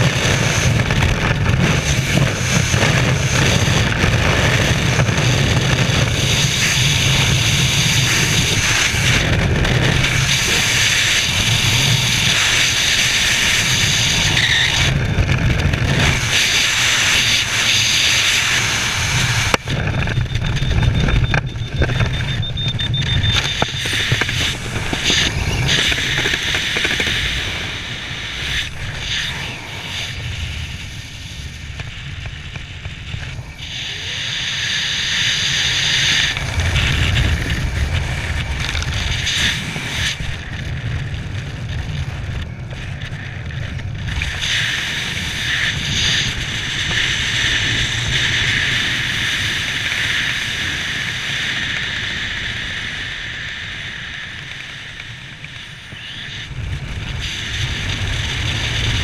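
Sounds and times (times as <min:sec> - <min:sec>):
wind roaring over microphone: 0:00.0 - 0:59.0.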